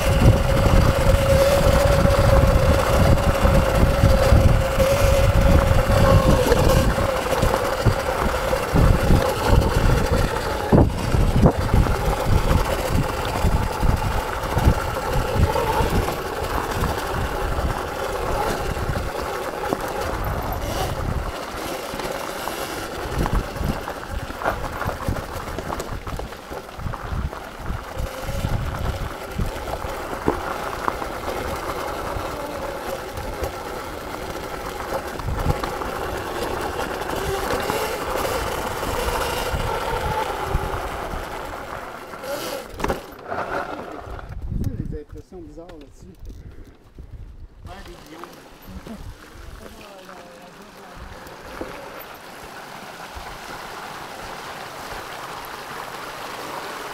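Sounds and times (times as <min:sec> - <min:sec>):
wind buffeting microphone: 0:00.0 - 0:21.8, 0:22.6 - 0:42.5, 0:43.9 - 0:48.0
electric motor whine: 0:00.0 - 0:44.4
bike knocking over rough ground: 0:00.1 - 0:32.3, 0:41.5 - 0:44.6.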